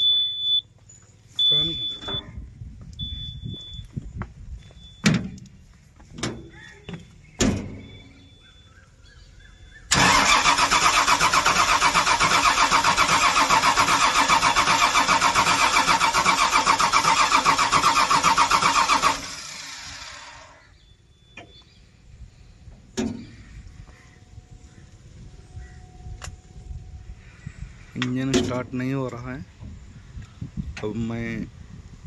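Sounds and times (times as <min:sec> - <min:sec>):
diesel engine cranking on starter: 0:09.8 - 0:20.7.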